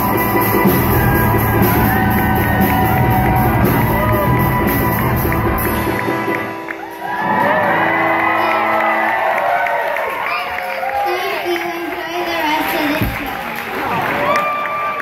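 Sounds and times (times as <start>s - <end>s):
live rock band playing: 0.0s - 9.4s
crowd cheering and screaming: 0.0s - 15.0s.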